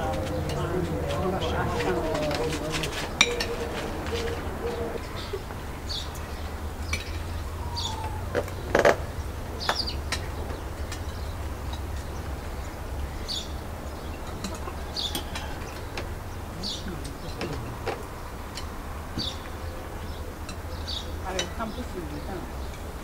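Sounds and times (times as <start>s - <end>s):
small bird chirping: 5.1s - 17.6s.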